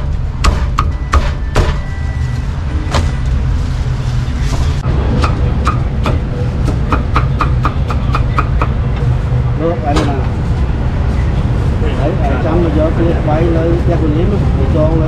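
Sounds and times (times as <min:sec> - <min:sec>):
cleaver chopping meat on wood: 0:00.0 - 0:01.8, 0:05.2 - 0:08.8
low street noise rumble: 0:00.0 - 0:15.0.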